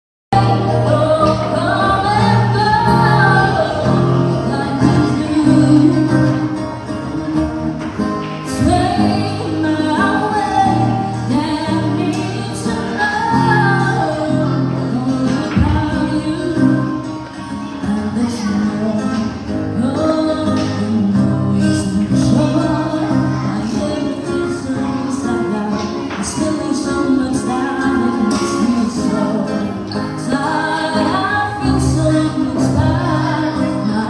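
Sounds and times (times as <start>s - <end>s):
acoustic guitar: 0.3s - 34.0s
woman singing into a microphone: 0.3s - 34.0s.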